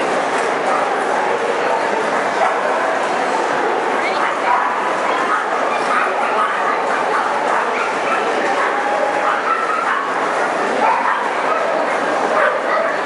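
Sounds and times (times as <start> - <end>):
hubbub of voices: 0.0 - 13.0
many dogs barking: 2.3 - 2.8, 4.2 - 13.0.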